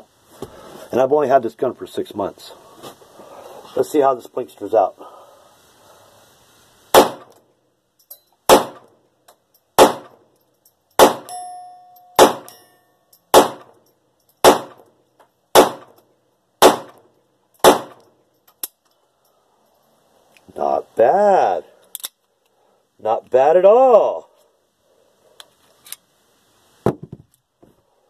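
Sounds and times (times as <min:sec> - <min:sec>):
pistol shots: 0:06.9 - 0:07.3, 0:08.5 - 0:08.9, 0:09.8 - 0:10.2, 0:11.0 - 0:11.3, 0:12.2 - 0:12.6, 0:13.3 - 0:13.7, 0:14.4 - 0:14.8, 0:15.5 - 0:16.0, 0:16.6 - 0:17.0, 0:17.6 - 0:18.0.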